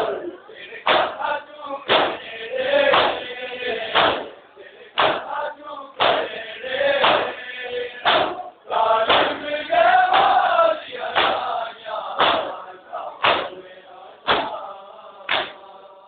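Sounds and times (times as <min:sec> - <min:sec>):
men chanting in unison: 0:00.0 - 0:16.0
hands slapping bare chests: 0:00.9 - 0:01.2, 0:01.9 - 0:02.2, 0:02.9 - 0:03.3, 0:04.0 - 0:04.3, 0:05.0 - 0:05.3, 0:06.0 - 0:06.3, 0:07.0 - 0:07.4, 0:08.0 - 0:08.4, 0:09.1 - 0:09.4, 0:10.1 - 0:10.4, 0:11.2 - 0:11.5, 0:12.2 - 0:12.5, 0:13.2 - 0:13.6, 0:14.3 - 0:14.6, 0:15.3 - 0:15.6.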